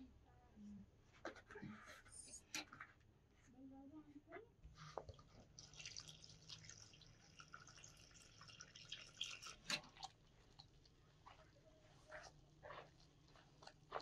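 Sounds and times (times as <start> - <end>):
water pouring from kettle: 5.1 - 11.2.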